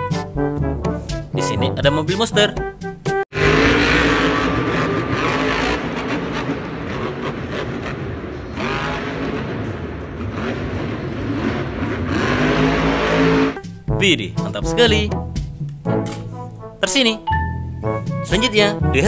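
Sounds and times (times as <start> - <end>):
truck engine revving: 3.1 - 14.5.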